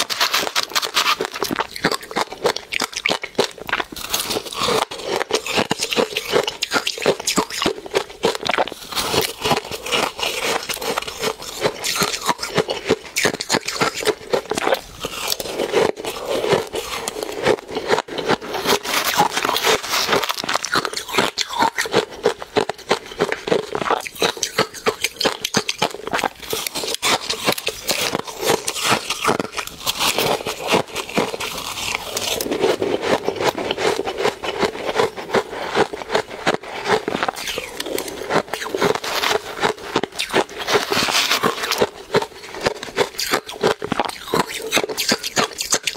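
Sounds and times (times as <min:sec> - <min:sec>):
metal spoon scraping plastic tub: 0:00.0 - 0:02.6, 0:08.9 - 0:21.4, 0:26.1 - 0:45.1
crunching and chewing shaved ice: 0:00.0 - 0:45.9.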